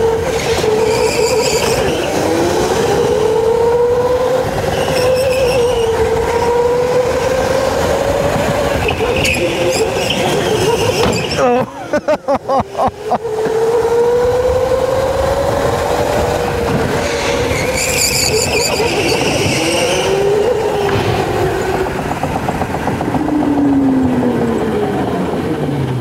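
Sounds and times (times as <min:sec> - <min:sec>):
tyres squealing: 0:00.0 - 0:03.3, 0:04.6 - 0:06.8, 0:08.6 - 0:11.9, 0:16.8 - 0:22.0
tyre and road noise: 0:00.0 - 0:26.0.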